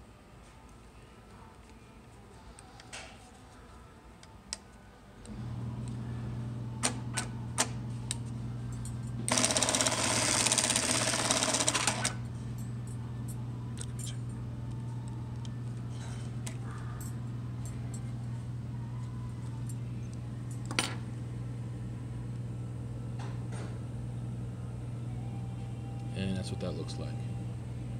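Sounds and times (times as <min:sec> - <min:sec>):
sewing machine hum: 0:09.2 - 0:12.3.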